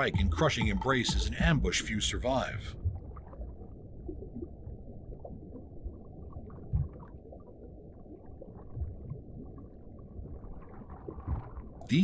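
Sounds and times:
low rumble of water: 0:00.0 - 0:12.0
faint underwater pops and clicks: 0:11.1 - 0:11.6.

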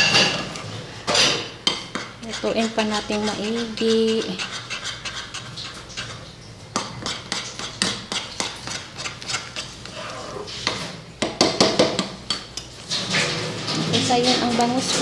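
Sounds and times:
metal spoon scraping a pan: 0:00.0 - 0:10.9.

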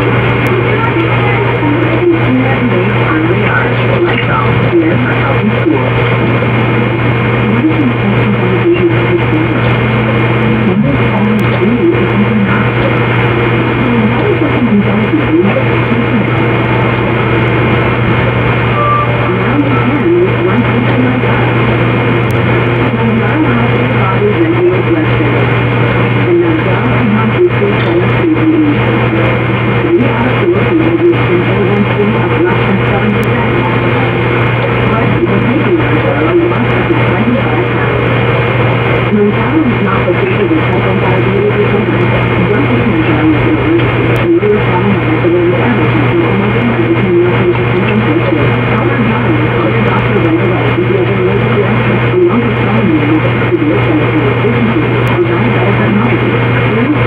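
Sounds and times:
hissy music recording: 0:00.0 - 0:57.0
steady low hum: 0:00.0 - 0:57.0
loud music: 0:05.8 - 0:26.8.

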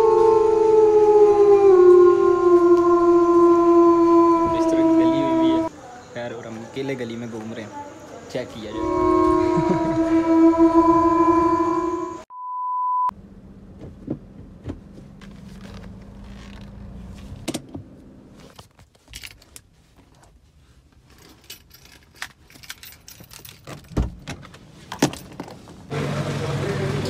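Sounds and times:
loud horn-like chord: 0:08.7 - 0:12.2
short steady beep: 0:12.3 - 0:13.1
handling sounds in car cabin: 0:13.7 - 0:25.9
keys jangling: 0:21.1 - 0:24.0.

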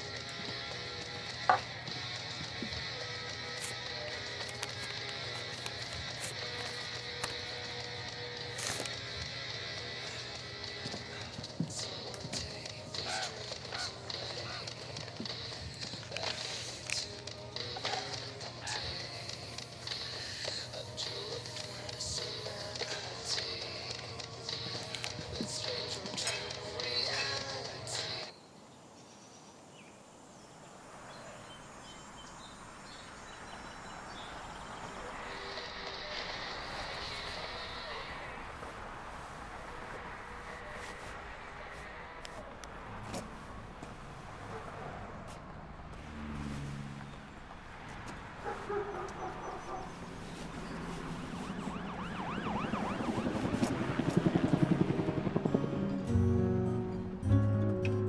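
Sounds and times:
city street ambience: 0:00.0 - 0:58.0
bird chirps: 0:28.3 - 0:35.7
siren yelping: 0:48.5 - 0:55.8.

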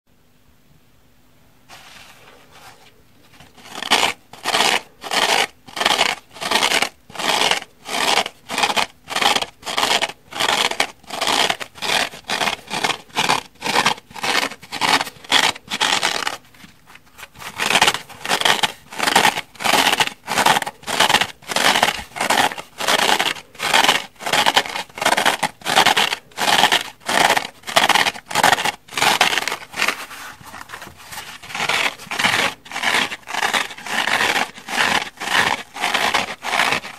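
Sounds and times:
fingernails scratching scouring pads: 0:03.3 - 0:36.9.

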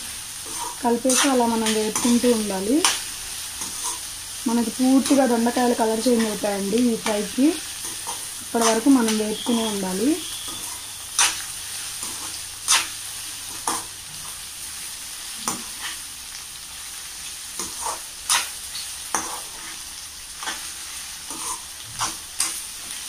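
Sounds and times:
vegetables sizzling in oil: 0:00.0 - 0:23.0
spatula scraping a pan: 0:00.4 - 0:02.2, 0:03.6 - 0:04.1, 0:07.8 - 0:13.9, 0:15.4 - 0:16.1, 0:17.6 - 0:19.8, 0:20.4 - 0:23.0.

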